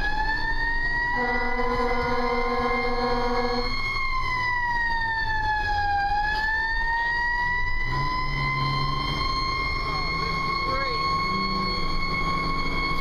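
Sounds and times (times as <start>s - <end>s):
fire engine siren wailing: 0.0s - 13.0s
truck engine rumble: 0.0s - 13.0s
horn blast: 1.2s - 3.6s.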